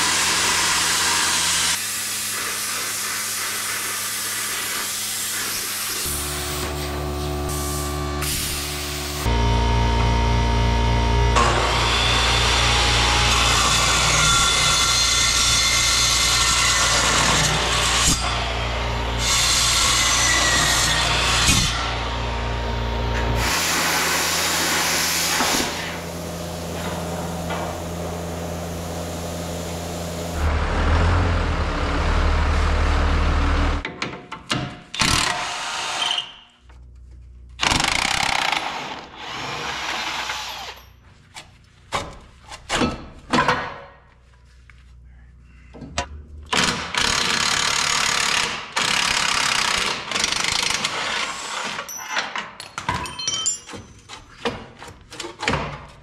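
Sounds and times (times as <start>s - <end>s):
circular saw cutting steel: 0.0s - 9.6s, 10.2s - 31.0s
impact driver running: 37.6s - 40.8s, 46.5s - 51.2s.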